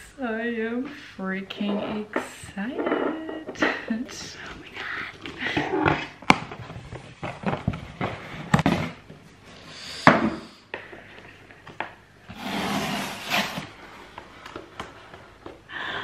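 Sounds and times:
cardboard flaps rustling and scraping: 12.3s - 13.8s.

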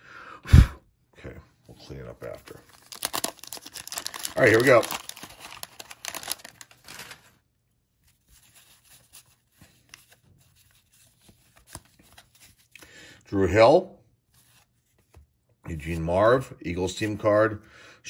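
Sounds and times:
cards rustling and clicking: 2.2s - 7.4s, 8.0s - 12.9s, 14.3s - 15.4s
waxed-paper wrapper tearing: 2.2s - 7.4s, 8.0s - 12.8s.

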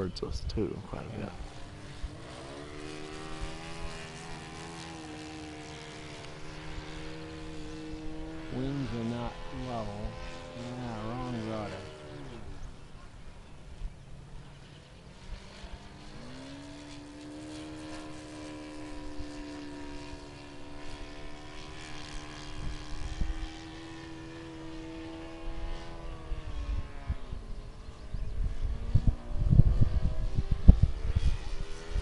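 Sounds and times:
model airplane motor buzzing: 0.9s - 32.0s.

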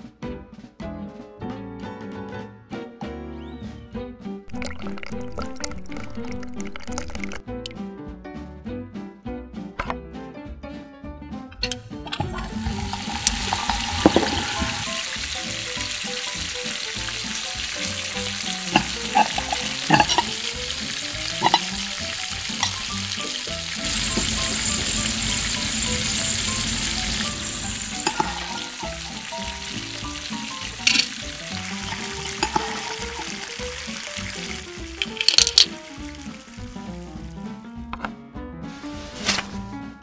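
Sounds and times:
dough deep-frying in oil: 12.2s - 37.3s
metal skimmer clinking on pan: 18.7s - 20.6s, 21.4s - 21.8s, 22.5s - 22.9s, 27.9s - 28.8s, 30.8s - 33.4s.

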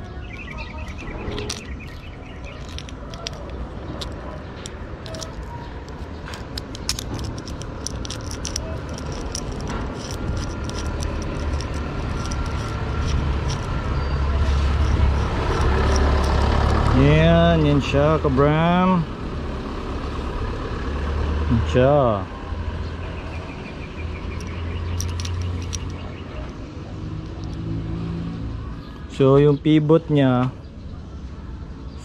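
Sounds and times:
vehicle engine rumbling: 0.0s - 32.0s
clutch cable clicking and rattling: 0.4s - 17.1s, 24.3s - 26.2s.

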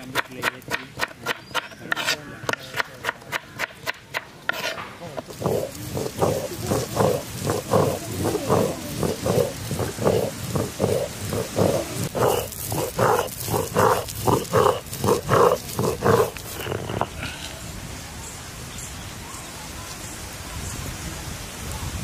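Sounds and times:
stone roller grinding on slab: 0.0s - 17.1s
faint hiss: 4.7s - 22.0s.

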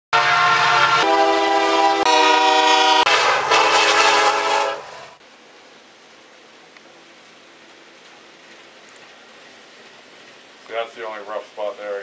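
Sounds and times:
locomotive air horn blasts: 0.1s - 5.2s.

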